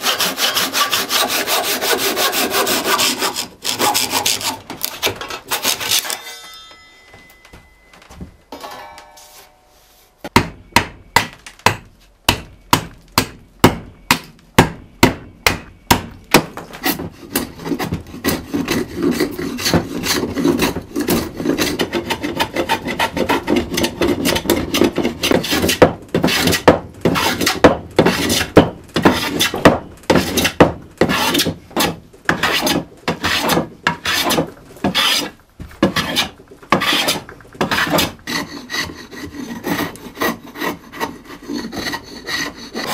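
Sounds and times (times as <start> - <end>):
hand plane shaving wood: 0.0 - 6.2, 16.7 - 42.9
hand saw cutting wood: 0.0 - 6.2, 16.7 - 42.9.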